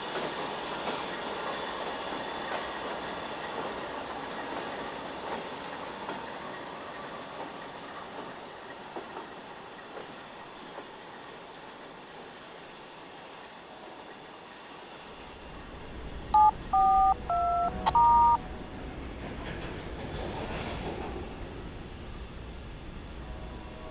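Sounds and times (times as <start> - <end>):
keypad beeps: 16.4 - 18.4.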